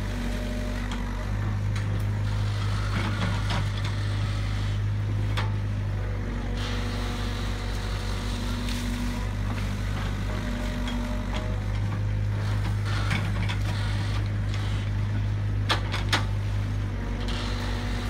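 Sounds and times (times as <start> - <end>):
excavator diesel engine running: 0.0 - 18.0.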